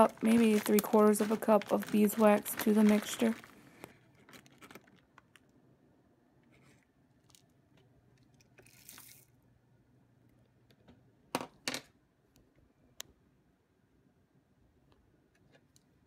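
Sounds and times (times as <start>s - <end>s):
bag rustle: 0.0s - 5.1s
crunching and crinkling of pellets: 0.0s - 5.6s, 6.6s - 9.4s.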